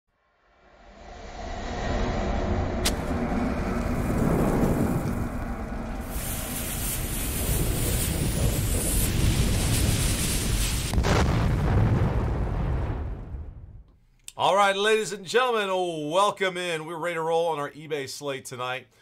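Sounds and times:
low rumble: 0:00.3 - 0:13.9
sharp crack: 0:02.8 - 0:13.6
loud hissing rush: 0:02.9 - 0:10.9.

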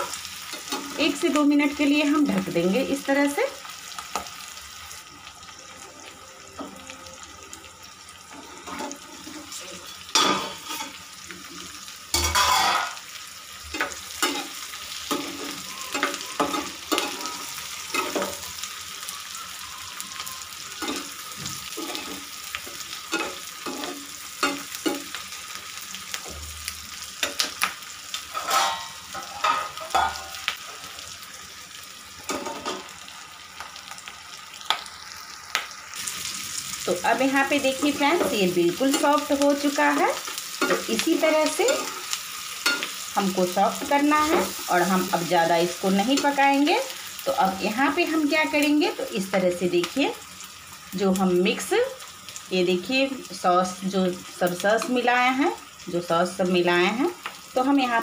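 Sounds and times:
vegetables sizzling in a pan: 0:00.0 - 0:58.0
metal utensils clinking on pan: 0:08.3 - 0:11.0, 0:12.1 - 0:13.0, 0:13.7 - 0:18.4, 0:20.7 - 0:25.2, 0:27.2 - 0:30.9, 0:32.3 - 0:32.9, 0:37.2 - 0:45.2.

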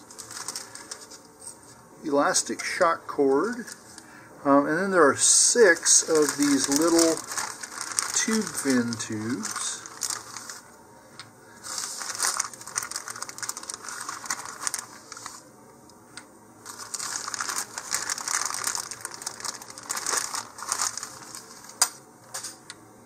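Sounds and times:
plastic bag crinkling: 0:00.0 - 0:01.2, 0:03.4 - 0:04.0, 0:05.2 - 0:10.7, 0:11.6 - 0:15.4, 0:16.6 - 0:21.8.

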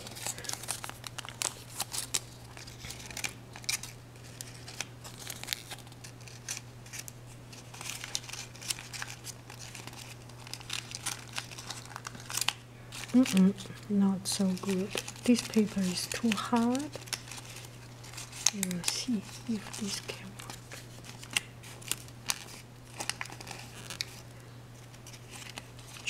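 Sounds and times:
aluminium foil crinkling: 0:00.0 - 0:26.0.

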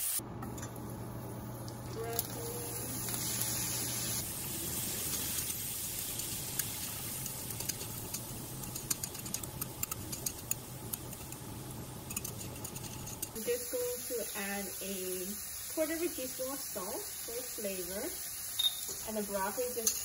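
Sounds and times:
food sizzling in a frying pan: 0:00.0 - 0:20.0
chopsticks clicking while stirring: 0:06.5 - 0:13.4.

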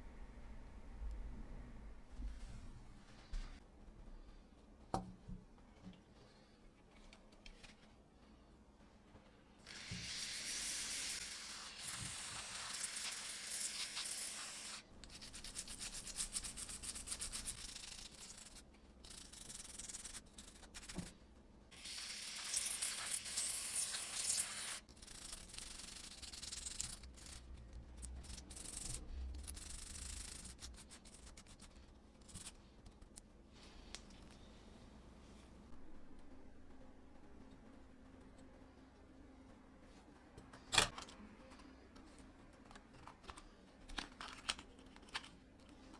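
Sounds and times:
aerosol cleaner hissing: 0:09.7 - 0:14.8
scratchy rubbing on circuit board: 0:11.0 - 0:21.0, 0:28.2 - 0:32.6.

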